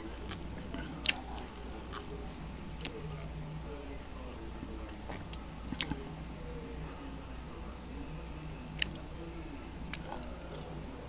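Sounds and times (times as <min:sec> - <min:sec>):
man chewing noodles: 0:00.0 - 0:03.7, 0:04.6 - 0:06.2, 0:09.8 - 0:11.0
sharp mouth clicks: 0:04.8 - 0:06.1.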